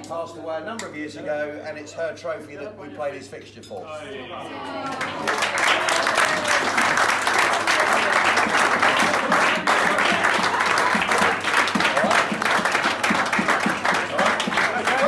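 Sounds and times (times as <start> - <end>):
people applauding: 4.7 - 15.0.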